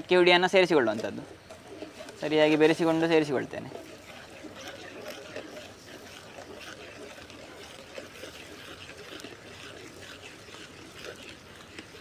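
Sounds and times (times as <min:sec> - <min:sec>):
water boiling in a pot: 0:00.0 - 0:09.2
ladle stirring with small clicks: 0:00.0 - 0:12.0.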